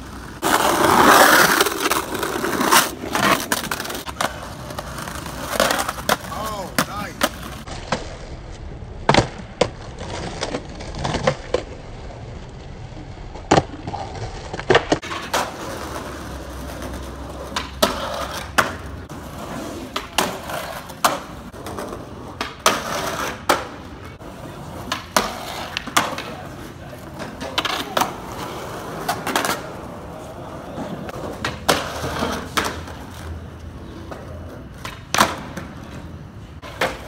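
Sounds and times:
skateboard decks clacking: 0:00.0 - 0:12.3, 0:13.0 - 0:37.0
skateboard wheels rumbling on concrete: 0:00.0 - 0:37.0.

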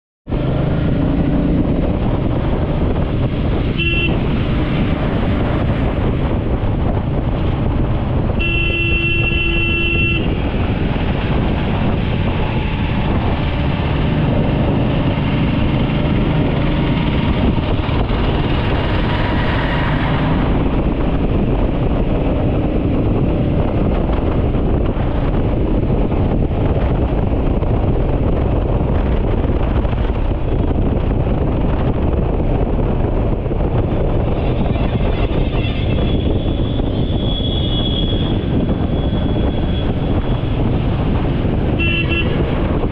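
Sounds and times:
motorcycle engine: 0:00.3 - 0:42.9
wind noise on microphone: 0:00.3 - 0:42.9
vehicle horn tooting: 0:03.7 - 0:04.2, 0:08.4 - 0:10.4, 0:41.7 - 0:42.6.

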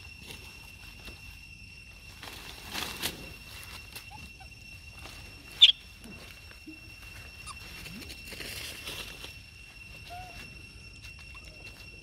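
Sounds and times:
high-pitched drone: 0:00.0 - 0:12.0
leaves and branches rustling: 0:00.0 - 0:12.0
monkey squeaking: 0:03.9 - 0:04.7, 0:05.5 - 0:06.0, 0:07.2 - 0:07.8, 0:10.0 - 0:10.4.

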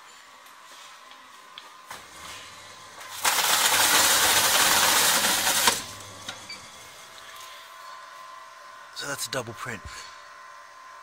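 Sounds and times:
carton driven through machine: 0:03.0 - 0:06.5.

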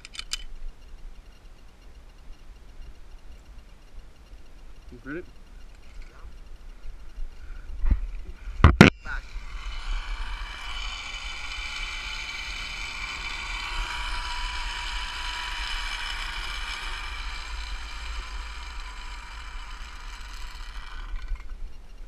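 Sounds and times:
zip-line pulleys whining on cable: 0:09.0 - 0:22.0.

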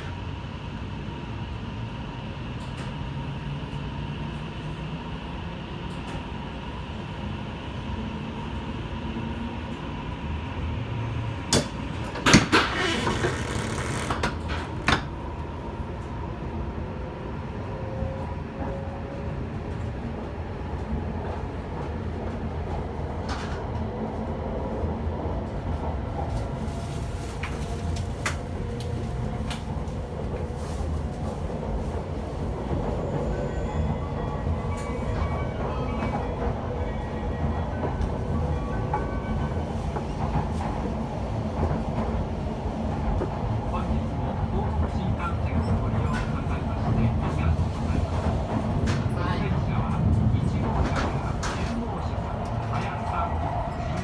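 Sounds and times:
train interior low rumble: 0:00.0 - 0:54.0.

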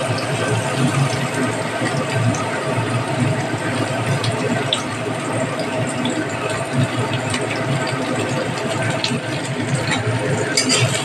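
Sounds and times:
vegetables sizzling in wok: 0:09.1 - 0:11.0.

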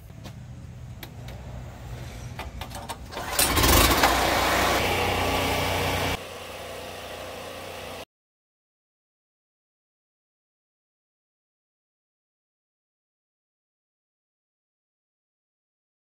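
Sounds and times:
portable generator running: 0:03.0 - 0:08.1.

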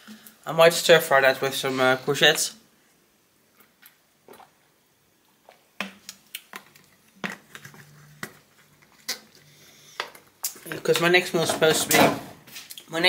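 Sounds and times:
person gulping and swallowing: 0:03.5 - 0:09.5.

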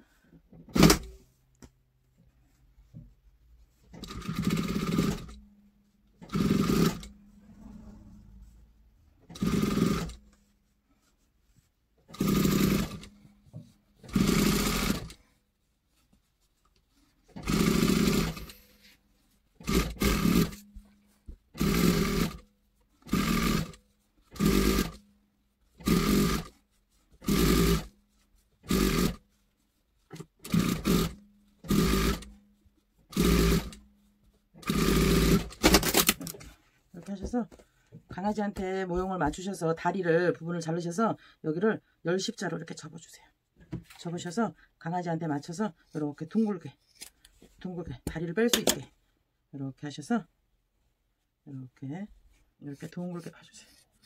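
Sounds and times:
sewing machine stitching: 0:00.7 - 0:01.2, 0:03.9 - 0:05.4, 0:06.2 - 0:08.5, 0:09.2 - 0:10.2, 0:12.1 - 0:13.2, 0:14.0 - 0:15.2, 0:17.3 - 0:18.7, 0:19.6 - 0:20.7, 0:21.5 - 0:25.0, 0:25.8 - 0:26.6, 0:27.2 - 0:27.9, 0:28.6 - 0:29.2, 0:30.1 - 0:32.4, 0:33.1 - 0:33.8, 0:34.6 - 0:36.3.

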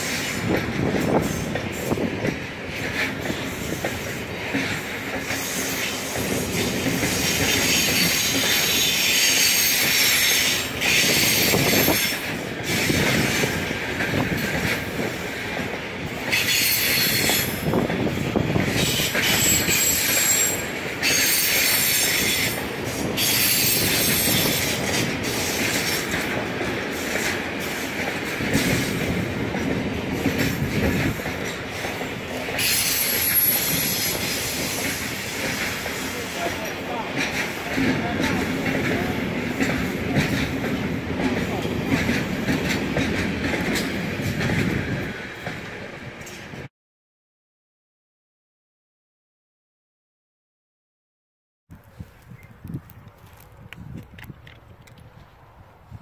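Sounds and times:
freight train rumbling over rails: 0:00.0 - 0:46.7
high wheel squeal: 0:18.8 - 0:22.6, 0:32.6 - 0:34.8.

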